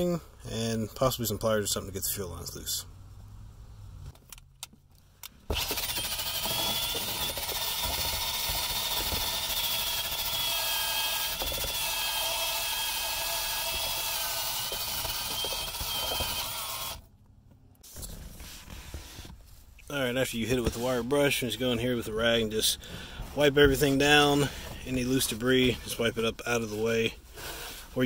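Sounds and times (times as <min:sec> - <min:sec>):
drill motor whine: 0:05.5 - 0:17.0.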